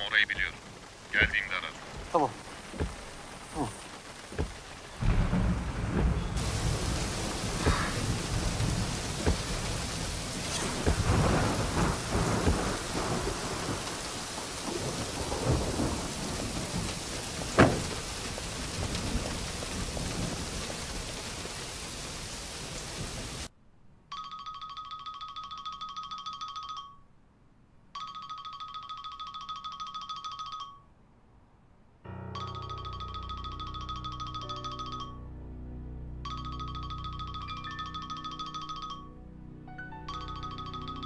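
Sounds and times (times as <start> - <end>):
heavy rain: 0.0 - 23.5
rumbling thunder: 0.7 - 23.5
sharp thunder crack: 1.2 - 21.5.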